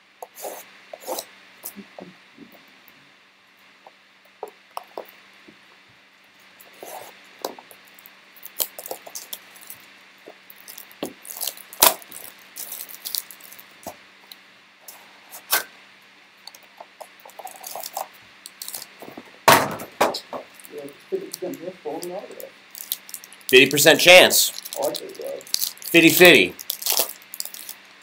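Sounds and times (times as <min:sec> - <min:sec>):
cellophane wrap crinkling: 0:07.8 - 0:13.9, 0:16.5 - 0:19.2, 0:22.3 - 0:28.0.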